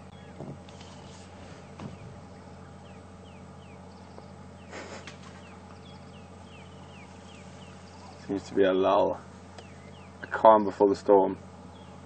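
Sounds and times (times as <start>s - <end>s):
steady low hum: 0.0s - 12.0s
brush rustling: 0.4s - 2.8s, 4.7s - 8.6s
bird whistling: 5.4s - 8.3s, 9.6s - 10.2s.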